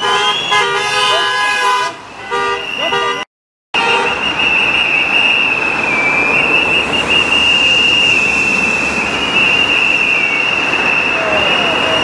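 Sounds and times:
street noise: 0.0 - 12.0
whistles blowing shrill tone: 2.5 - 3.2, 3.8 - 12.0.

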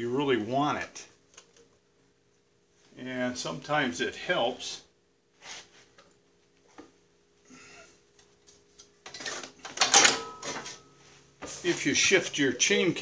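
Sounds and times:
faint clicks and handling: 1.2 - 1.8.

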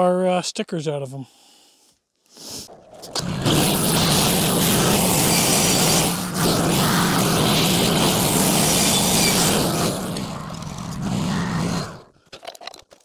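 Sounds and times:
band sawmill cutting wood: 3.1 - 12.0.

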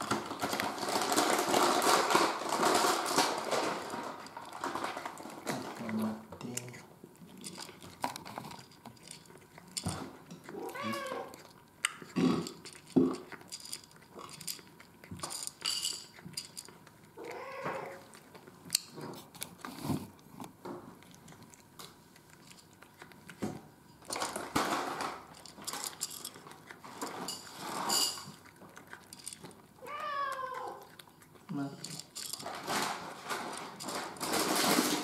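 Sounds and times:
cat eating crunchy food: 0.0 - 35.0
cat meowing: 10.5 - 11.4, 17.2 - 18.0, 29.8 - 30.9
rustling: 31.7 - 35.0.

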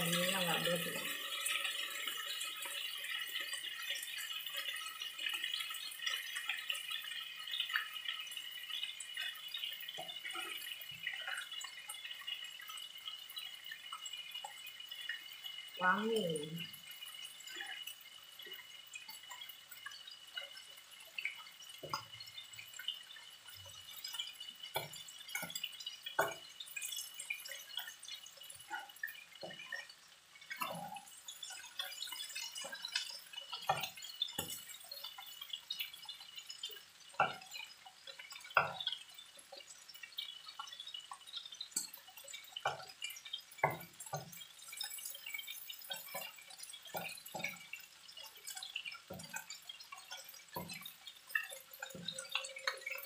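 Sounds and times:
shrimp sizzling in hot oil: 0.0 - 53.0.

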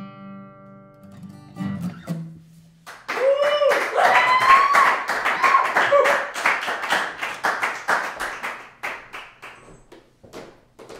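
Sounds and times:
audience applauding: 2.9 - 9.7.

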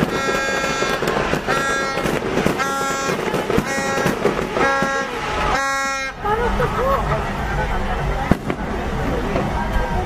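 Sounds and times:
vehicle horn short blasts: 0.0 - 6.2
fireworks crackling and banging: 0.0 - 10.0.

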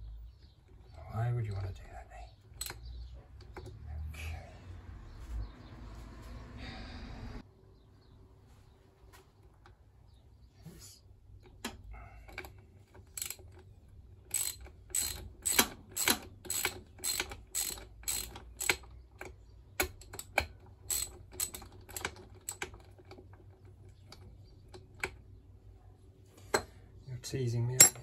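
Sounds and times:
socket ratchet clicking: 2.5 - 2.8, 11.4 - 22.8.

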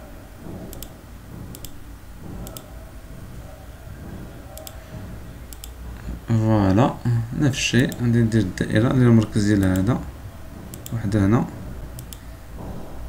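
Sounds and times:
low room hum: 0.0 - 13.0
computer mouse clicking: 0.7 - 1.8, 2.4 - 2.7, 4.5 - 4.8, 5.5 - 5.8, 9.2 - 10.0, 10.7 - 11.0, 12.0 - 12.3.

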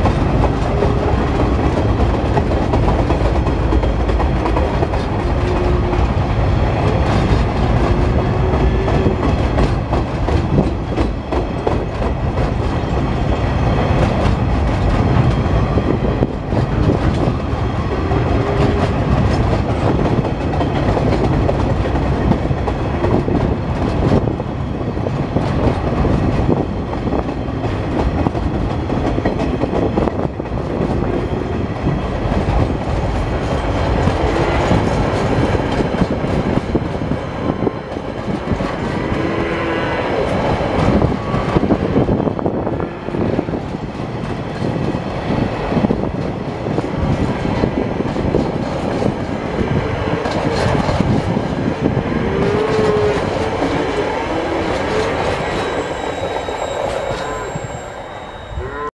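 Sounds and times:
clickety-clack over rail joints: 0.0 - 57.3
train wheels rumbling: 0.0 - 58.8
wheels squealing: 52.3 - 58.9.

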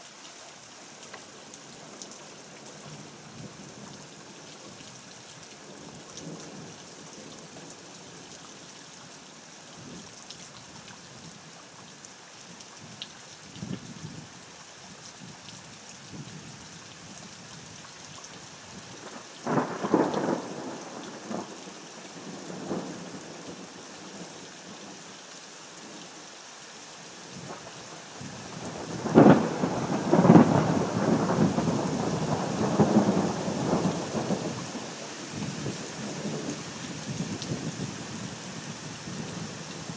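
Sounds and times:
steady rain falling: 0.0 - 39.9
thunder rumbling: 28.6 - 34.6.

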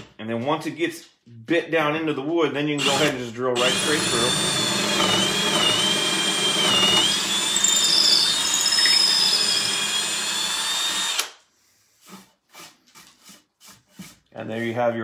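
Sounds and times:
cordless drill boring into wood: 2.8 - 11.4.

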